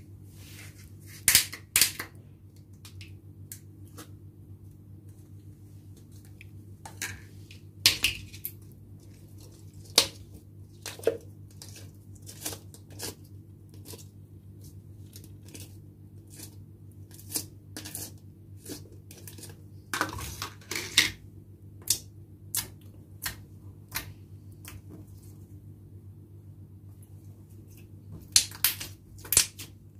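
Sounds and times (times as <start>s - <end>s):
steady low hum: 0.0s - 29.9s.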